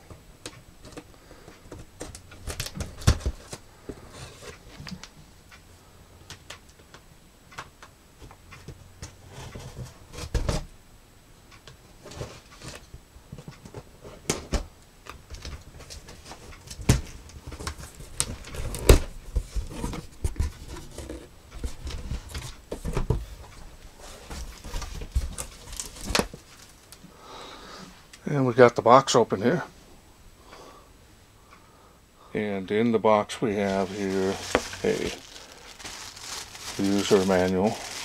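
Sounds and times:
paper and plastic wrap handling: 24.3s - 27.0s, 33.5s - 38.0s.

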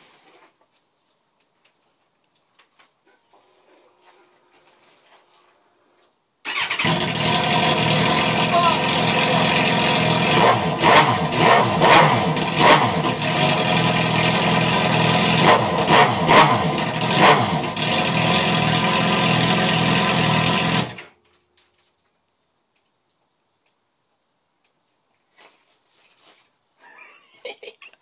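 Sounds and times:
motorcycle engine idling and blipping: 6.5s - 21.0s.

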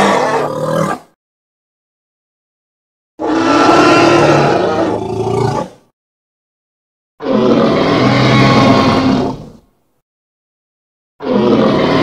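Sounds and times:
dinosaur roar: 0.0s - 1.1s, 3.2s - 5.8s, 7.2s - 9.6s, 11.2s - 12.0s.

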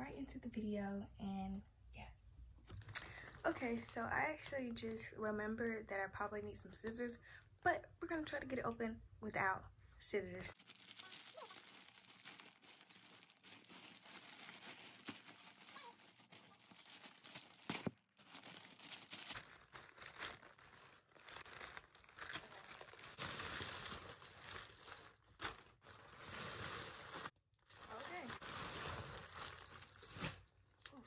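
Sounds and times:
plastic bag crinkling: 10.5s - 31.0s
plastic tearing: 10.5s - 31.0s.

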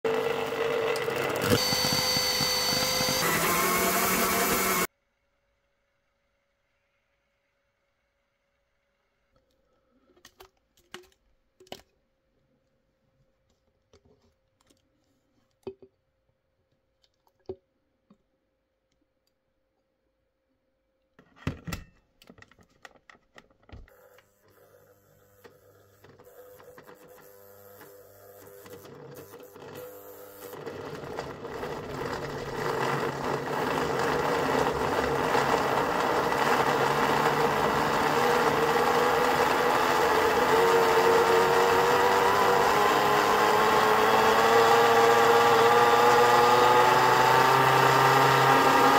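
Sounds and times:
blender motor blending: 0.1s - 4.9s, 23.9s - 48.9s.

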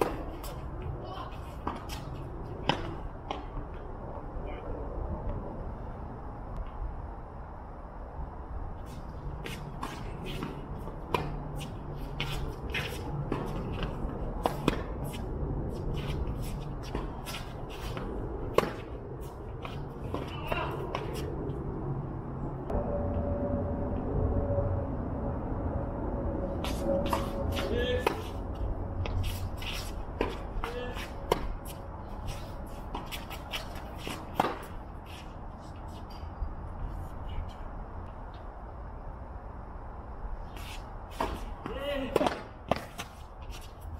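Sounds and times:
tennis ball impacts: 0.0s - 0.8s, 1.5s - 3.8s, 9.4s - 15.2s, 16.8s - 21.4s, 29.0s - 31.8s, 32.9s - 34.9s, 41.1s - 43.2s
shoes scuffing on court: 0.0s - 3.5s, 8.8s - 21.4s, 26.6s - 36.2s, 40.5s - 43.9s.

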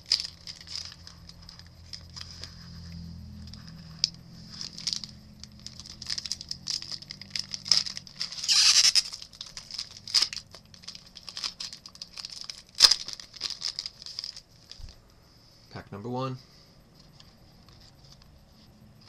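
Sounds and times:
foil wrappers crinkling and tearing: 0.0s - 15.0s.

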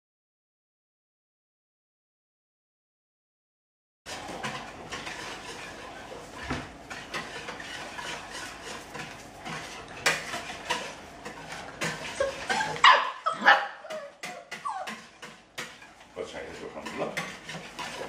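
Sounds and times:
puppies yipping and whining: 12.1s - 15.2s.

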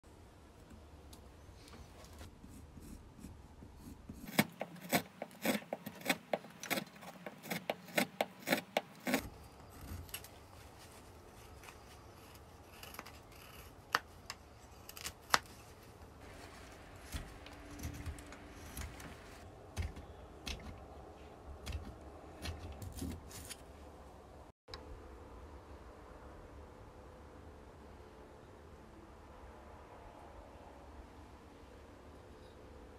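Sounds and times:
knife cutting wood: 3.8s - 10.4s, 11.3s - 20.8s
wood scraping: 4.0s - 23.9s.

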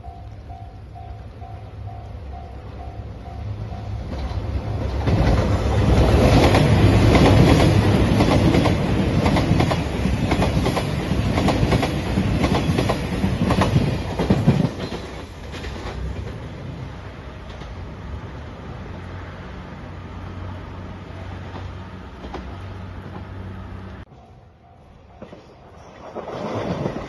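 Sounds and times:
train wheels clacking over rail joints: 4.0s - 16.5s.

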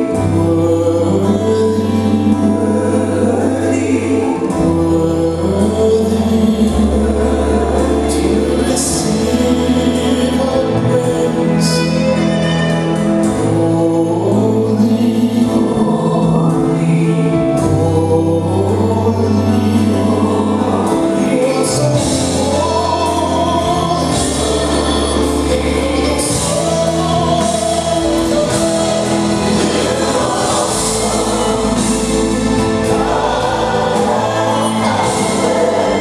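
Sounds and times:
long-held bass notes: 0.0s - 36.0s
choir singing: 14.1s - 36.0s.

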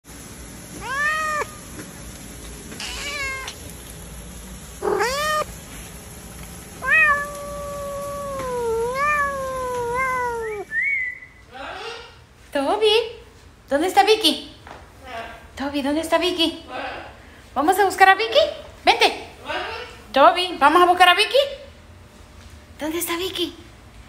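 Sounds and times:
cat meowing: 0.8s - 1.7s, 2.8s - 3.6s, 4.8s - 5.5s, 6.8s - 10.7s.

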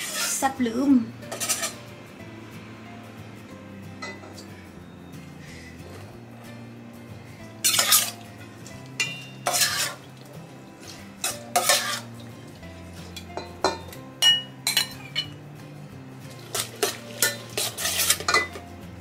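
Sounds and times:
soft background music: 0.0s - 19.0s
metal ladle clanking on pot: 7.6s - 8.2s, 9.0s - 10.0s, 11.2s - 12.1s, 13.2s - 15.4s, 16.5s - 18.6s.

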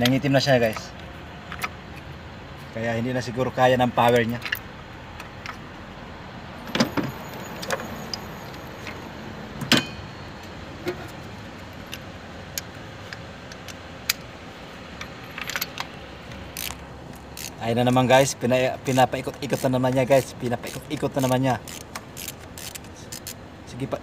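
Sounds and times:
metallic clicks and clinks: 15.0s - 15.9s.

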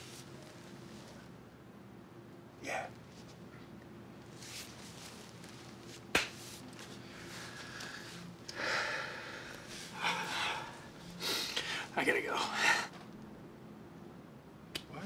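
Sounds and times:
man breathing heavily: 7.0s - 13.0s.

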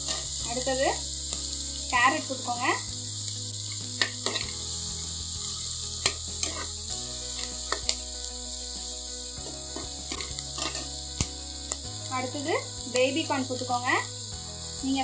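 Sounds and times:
steel spoon scraping pan: 0.0s - 0.9s, 3.7s - 8.2s, 9.4s - 12.3s
vegetables sizzling in butter: 0.0s - 15.0s.

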